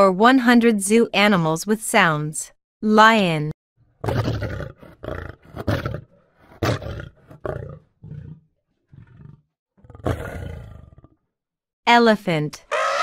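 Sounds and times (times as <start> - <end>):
lion roaring: 4.0 - 11.2, 12.7 - 13.0.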